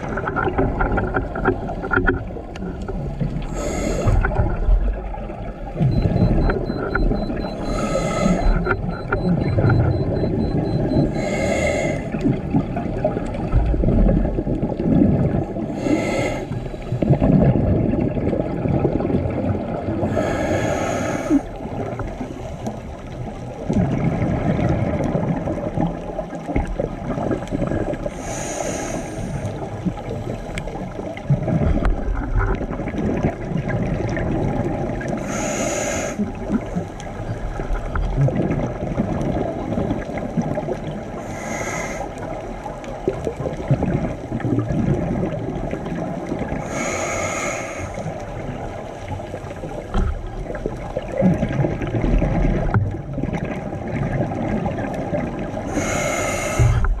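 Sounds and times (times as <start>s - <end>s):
low underwater rumble: 0.0s - 11.3s, 12.0s - 15.8s, 47.7s - 57.0s
diver exhaling bubbles: 5.8s - 22.0s.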